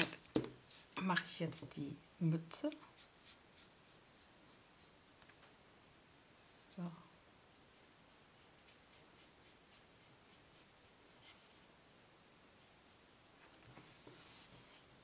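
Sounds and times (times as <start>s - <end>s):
marker rubbing on paper: 2.8s - 5.1s, 6.8s - 11.7s, 12.4s - 14.6s.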